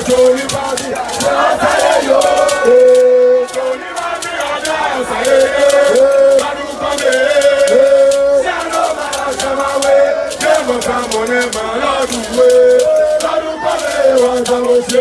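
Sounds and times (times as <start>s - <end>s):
crowd noise: 0.0s - 15.0s
men chanting together: 0.0s - 15.0s.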